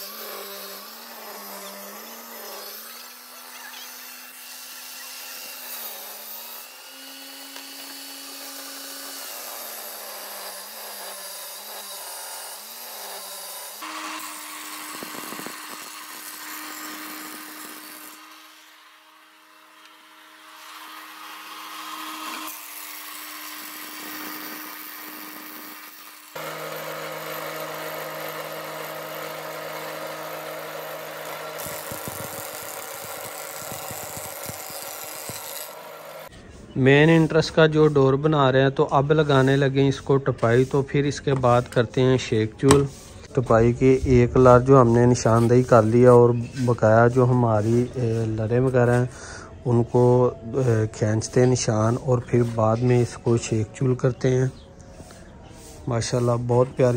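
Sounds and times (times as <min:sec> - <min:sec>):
wood planing machine running: 0:00.0 - 0:36.3
woodworking machine cutting: 0:00.0 - 0:36.3
steady motor hum: 0:13.0 - 0:36.3.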